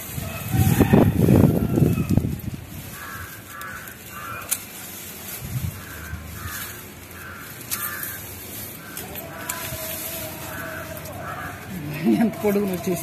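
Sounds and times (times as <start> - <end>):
crows cawing: 2.8 - 4.9, 5.7 - 11.9.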